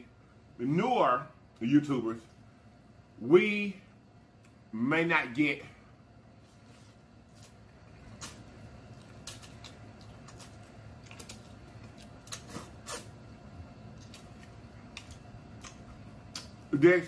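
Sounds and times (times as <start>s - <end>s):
wet chewing clicks and smacks: 8.1s - 13.0s, 13.9s - 16.7s
slurping noodles: 12.3s - 13.2s.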